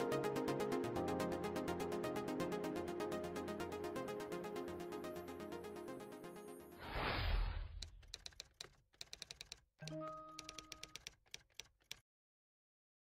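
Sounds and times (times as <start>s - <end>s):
background music: 0.0s - 6.9s, 9.8s - 11.1s
keyboard typing clicks: 7.7s - 12.0s.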